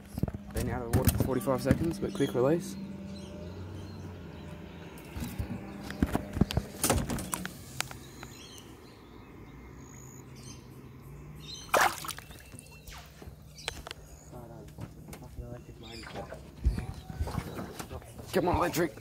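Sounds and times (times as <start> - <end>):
birds chirping: 0.0 - 19.0
water splashing against boat: 11.4 - 13.4, 14.6 - 19.0.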